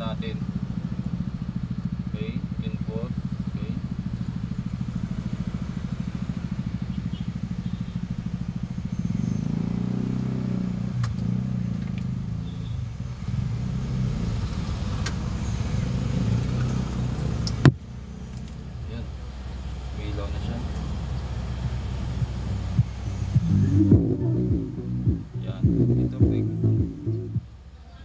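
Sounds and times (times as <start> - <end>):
pulsing low hum: 20.8 - 27.6
bass notes from speaker: 21.6 - 27.5.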